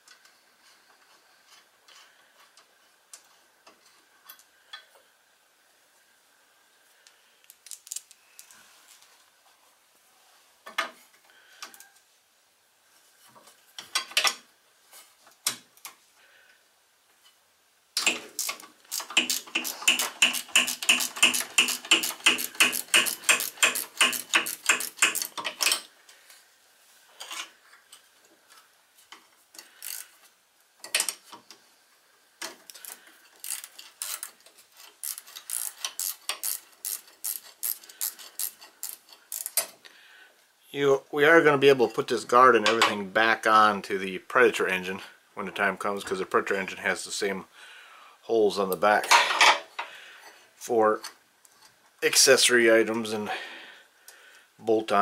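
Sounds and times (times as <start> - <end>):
ratchet wrench clicking: 18.0 - 25.5, 29.8 - 30.1, 32.7 - 39.7.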